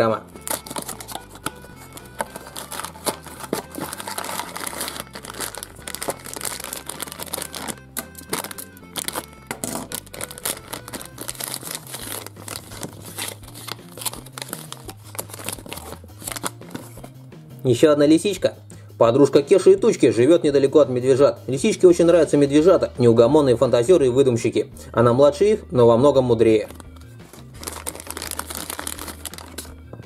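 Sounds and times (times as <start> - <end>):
background music: 0.0 - 30.0
packaging being torn open: 0.3 - 17.0, 26.7 - 29.7
plastic packaging crinkling: 0.3 - 17.1, 26.6 - 29.8.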